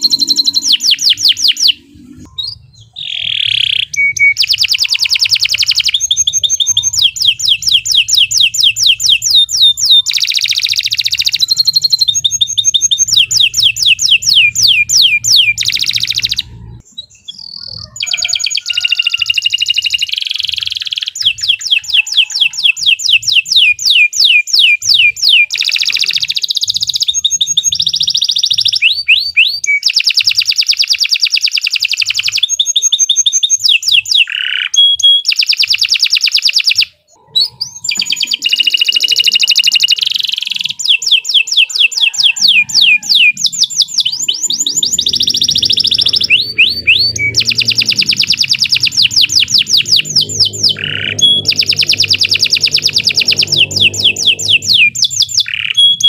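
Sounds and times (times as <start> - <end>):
canary singing trills: 0.0 - 56.0.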